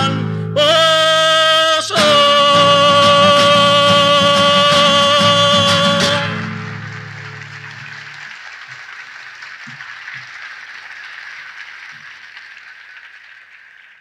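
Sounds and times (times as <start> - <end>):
audience applauding: 3.4 - 14.0.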